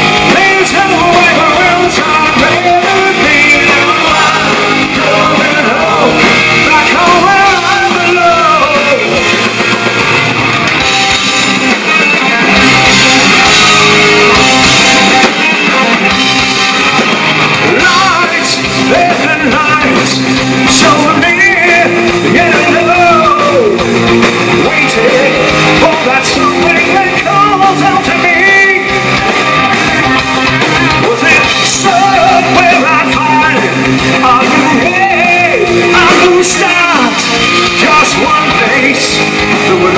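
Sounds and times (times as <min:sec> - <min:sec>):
man singing: 0:00.0 - 0:09.4, 0:17.6 - 0:29.0, 0:31.0 - 0:39.9
bass guitar: 0:00.0 - 0:39.9
distorted electric guitars: 0:00.0 - 0:39.9
drums: 0:00.0 - 0:39.9.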